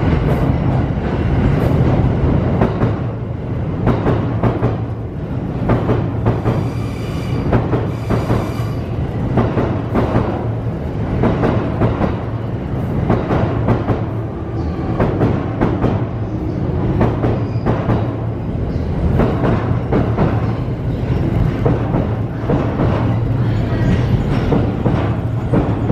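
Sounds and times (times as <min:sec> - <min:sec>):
train wheels clattering over rail joints: 0:03.8 - 0:10.4, 0:19.0 - 0:25.9.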